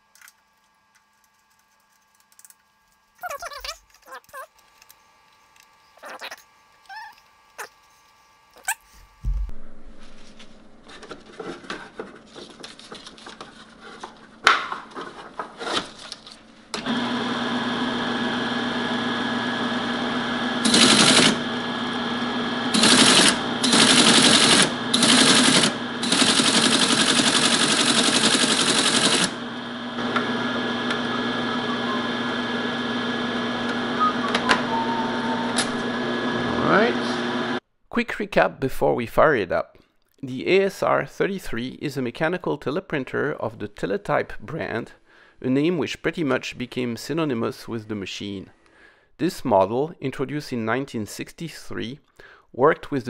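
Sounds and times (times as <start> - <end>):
motor humming: 16.7 - 37.6.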